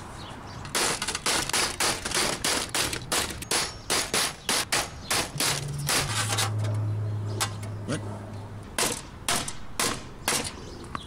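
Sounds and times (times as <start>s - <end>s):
hammer striking metal panel: 8.8s - 10.6s.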